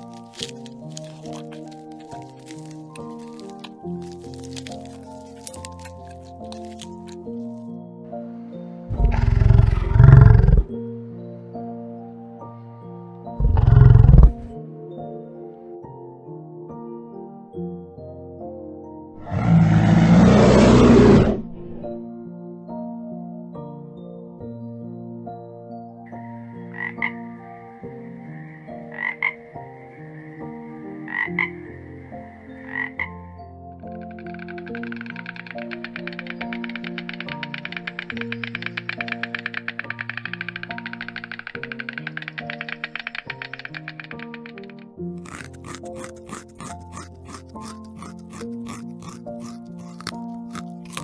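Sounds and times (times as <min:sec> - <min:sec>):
soft background music: 0:00.0 - 0:51.0
deep animal roars: 0:08.9 - 0:10.7, 0:13.4 - 0:14.6, 0:19.2 - 0:21.9
frog croaking: 0:08.9 - 0:10.8, 0:13.4 - 0:14.6, 0:19.2 - 0:21.4, 0:26.6 - 0:51.0.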